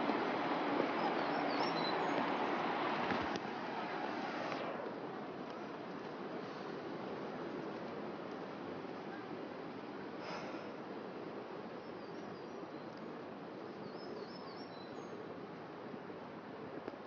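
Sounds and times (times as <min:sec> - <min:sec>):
outdoor background noise: 0:00.0 - 0:17.0
faint high bird chirps: 0:01.0 - 0:02.4, 0:13.8 - 0:15.2.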